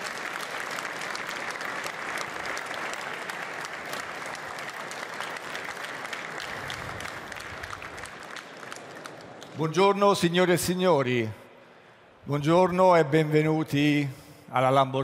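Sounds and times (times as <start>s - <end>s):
large audience applauding: 0.0s - 10.0s.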